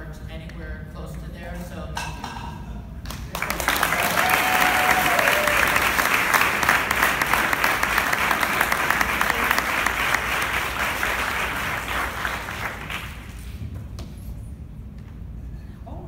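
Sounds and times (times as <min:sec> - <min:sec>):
audience applauding: 0:03.3 - 0:13.4.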